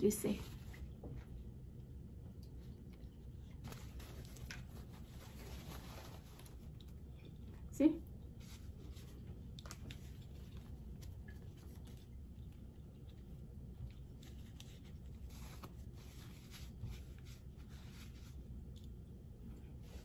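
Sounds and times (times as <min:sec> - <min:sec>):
low room rumble: 0:00.0 - 0:20.0
paper mask rustling: 0:03.4 - 0:07.1, 0:08.3 - 0:18.9.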